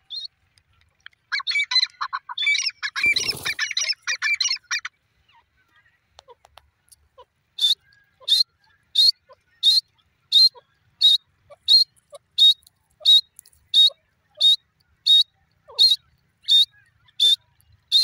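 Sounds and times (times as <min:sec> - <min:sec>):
francolin calling: 0:07.2 - 0:18.0.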